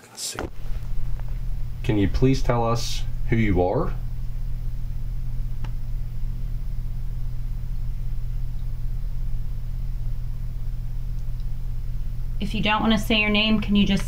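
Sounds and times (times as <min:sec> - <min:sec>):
low hum and hiss: 0:00.4 - 0:14.0.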